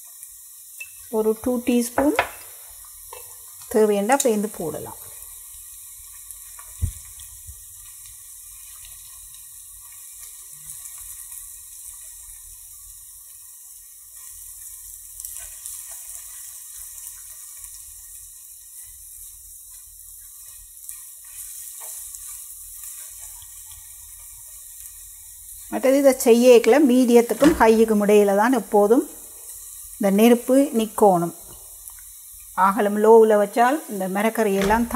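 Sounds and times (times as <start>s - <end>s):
food sizzling in a pan: 0.0s - 34.9s
sharp knock: 27.4s - 27.8s.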